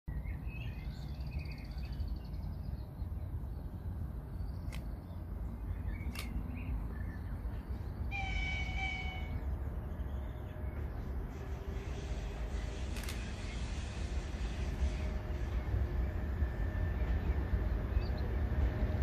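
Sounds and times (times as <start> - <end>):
sharp clicks: 4.6 - 5.0, 6.0 - 6.4
distant locomotive horn: 8.1 - 9.7.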